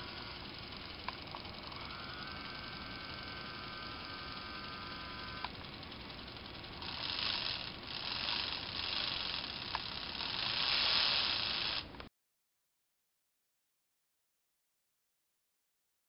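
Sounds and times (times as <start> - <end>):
toy motor whirring: 0.0 - 12.0
steady motor whine: 0.0 - 12.1.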